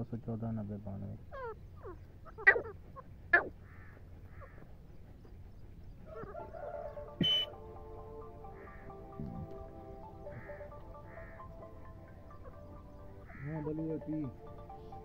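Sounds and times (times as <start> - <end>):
francolin calls: 1.2 - 4.7, 6.1 - 15.0
background music: 6.1 - 15.0.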